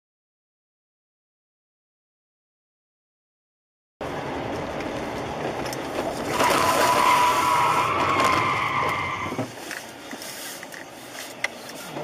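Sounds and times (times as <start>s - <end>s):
tyre and road noise: 4.0s - 12.0s
car tyres squealing: 6.0s - 9.6s.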